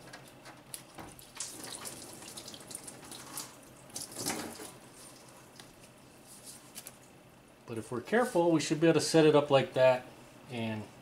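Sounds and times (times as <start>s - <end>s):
coolant pouring into a pan: 1.1s - 4.7s.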